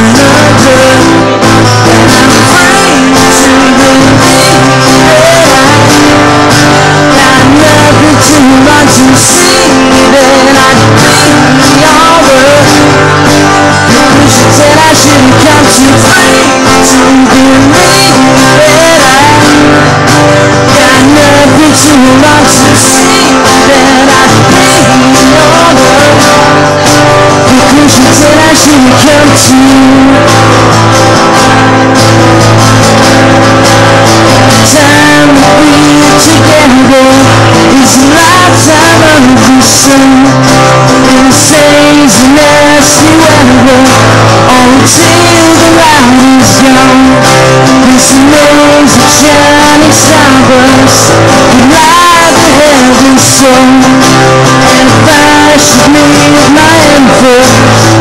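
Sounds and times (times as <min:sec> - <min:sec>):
guitar playing: 0:00.0 - 0:58.0
man singing: 0:00.0 - 0:58.0.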